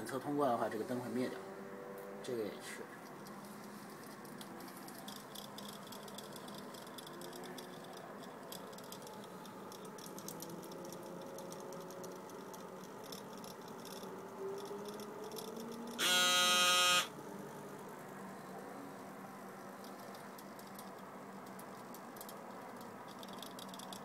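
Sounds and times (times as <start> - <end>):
electronic buzzer beep: 16.0 - 17.1.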